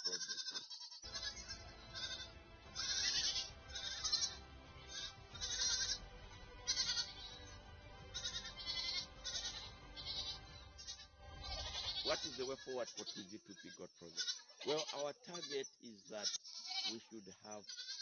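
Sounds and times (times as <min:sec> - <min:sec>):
goats bleating: 0:00.0 - 0:18.0
background music: 0:01.0 - 0:13.8.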